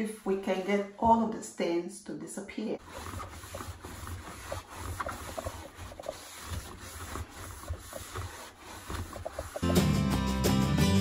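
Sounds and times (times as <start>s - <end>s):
paper towel wiping metal drum: 2.8s - 9.9s.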